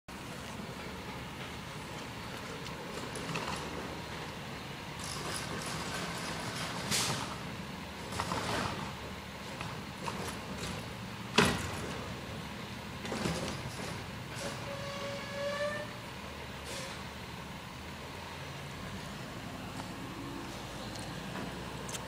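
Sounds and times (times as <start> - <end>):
garbage truck engine running: 0.1 - 22.0
hissing and clattering: 0.7 - 12.2, 13.0 - 15.0.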